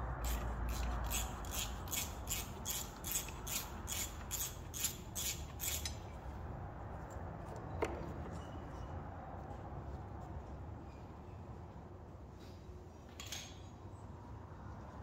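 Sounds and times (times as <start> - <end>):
hand scrubbing metal part: 0.2 - 6.0.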